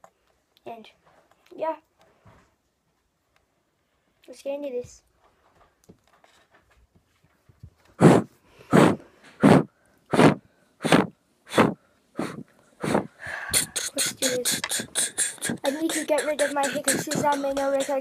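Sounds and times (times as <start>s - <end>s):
person beatboxing: 8.0s - 18.0s.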